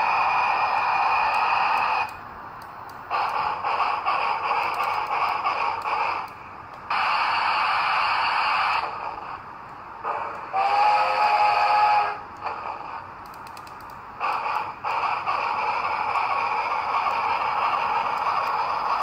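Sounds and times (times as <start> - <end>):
steam hiss: 0.0 - 19.0
train whistle blast: 10.5 - 12.3.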